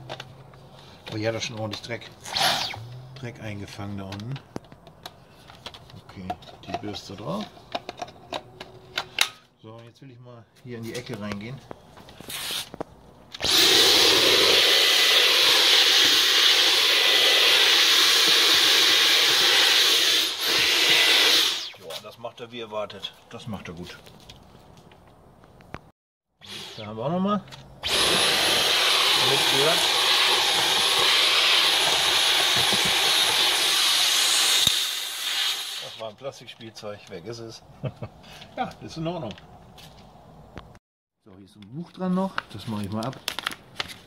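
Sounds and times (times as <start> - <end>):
vacuum cleaner running: 13.4 - 21.7, 27.8 - 36.0.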